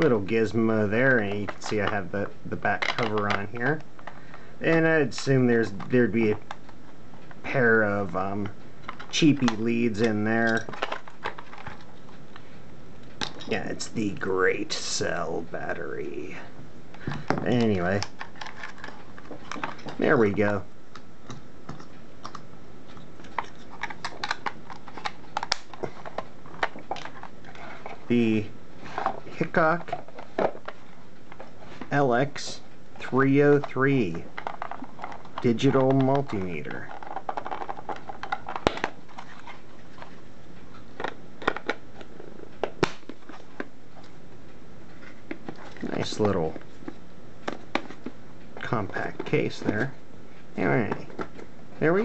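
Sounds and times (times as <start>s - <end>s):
plastic case handling clicks: 23.2s - 28.0s, 33.6s - 40.1s.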